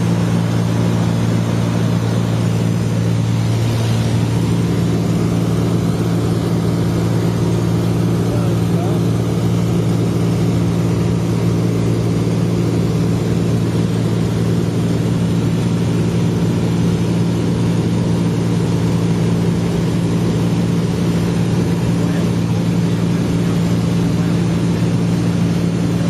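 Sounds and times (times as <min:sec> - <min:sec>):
aircraft engine and propeller droning: 0:00.0 - 0:26.0.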